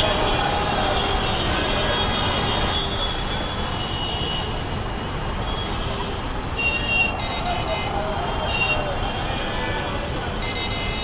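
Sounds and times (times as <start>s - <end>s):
road traffic noise: 0.0s - 11.0s
small bell ringing: 2.7s - 4.0s.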